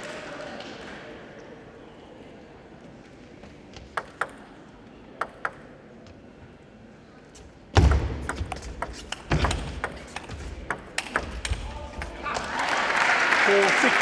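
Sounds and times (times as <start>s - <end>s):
table tennis ball bouncing: 3.8s - 4.6s, 5.2s - 5.8s, 7.8s - 12.2s.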